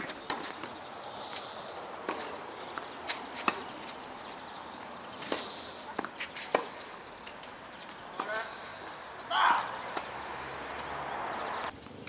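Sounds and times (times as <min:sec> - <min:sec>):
tennis ball hitting racket: 0:00.0 - 0:11.7
ball bouncing on hard court: 0:04.8 - 0:11.7.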